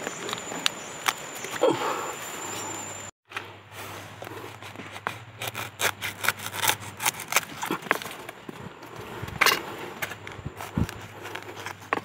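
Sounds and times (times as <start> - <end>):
machete chopping bamboo: 4.5 - 8.4.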